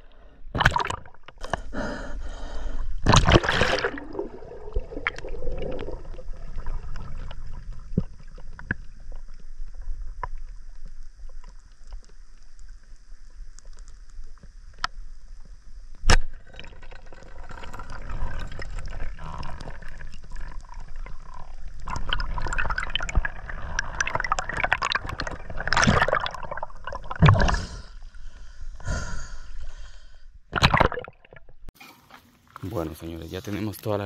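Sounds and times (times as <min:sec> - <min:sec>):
splash into water: 0:00.6 - 0:01.1, 0:03.0 - 0:06.0, 0:30.5 - 0:31.3
muffled underwater river rumble: 0:03.2 - 0:16.0
small underwater clicks: 0:06.9 - 0:26.2.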